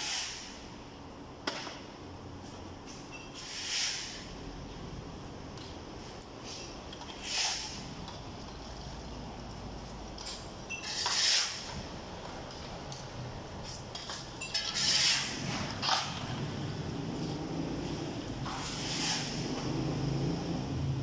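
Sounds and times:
shovel scraping into rubble: 14.5 - 16.3.

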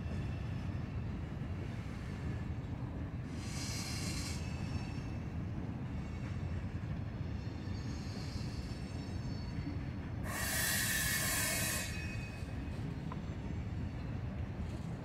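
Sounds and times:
rail wheels rumbling: 0.0 - 15.0
loud hiss: 10.3 - 12.0.

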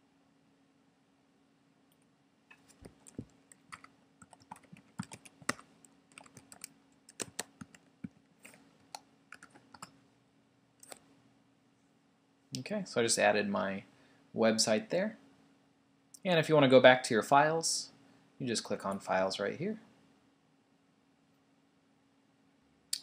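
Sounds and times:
keyboard typing: 2.5 - 9.9.

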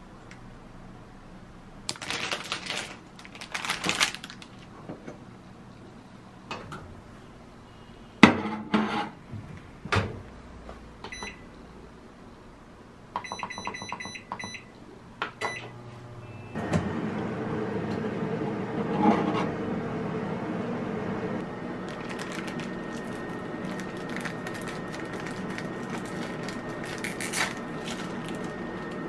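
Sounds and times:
microwave running hum: 9.2 - 29.0.

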